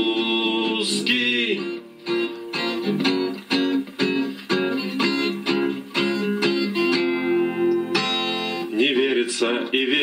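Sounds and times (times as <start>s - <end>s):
man singing: 0.0s - 1.9s, 8.7s - 10.0s
guitar chords strummed: 0.0s - 9.0s.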